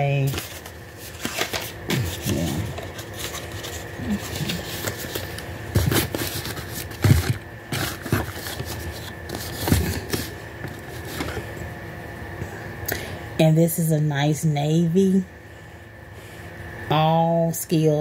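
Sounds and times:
cardboard boxes scraping and rustling: 0.3s - 11.5s.

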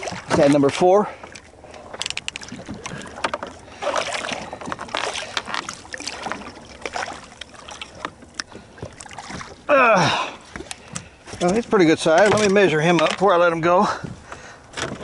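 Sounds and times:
water splashing against boat: 0.0s - 15.0s
gear knocking against boat: 10.9s - 15.0s.

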